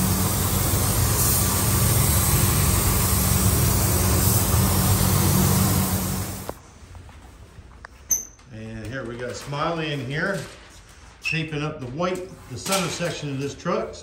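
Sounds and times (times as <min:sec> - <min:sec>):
paint spray gun hissing: 0:00.0 - 0:06.6
booth air rush and hum: 0:00.0 - 0:06.9.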